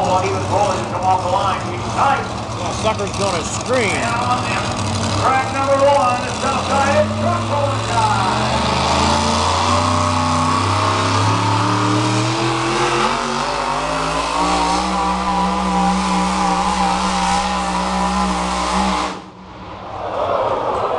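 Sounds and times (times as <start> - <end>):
truck engine at high revs: 0.0 - 19.8.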